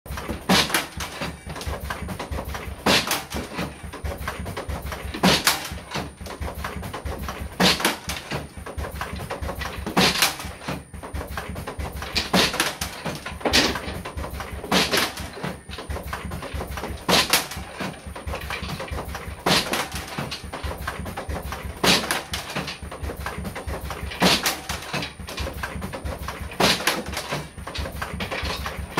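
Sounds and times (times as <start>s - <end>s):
low machine hum: 0.1s - 28.9s
sharp pneumatic bursts: 2.8s - 3.9s.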